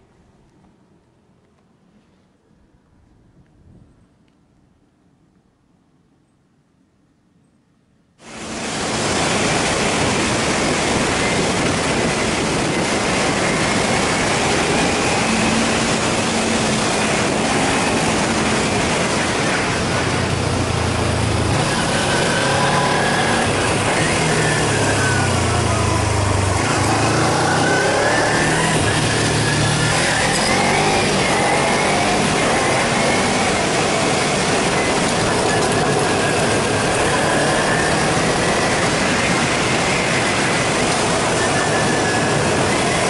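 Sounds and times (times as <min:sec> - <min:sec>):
wind noise: 0:02.5 - 0:05.3, 0:08.2 - 0:43.0
motorcycle engine: 0:11.2 - 0:43.0.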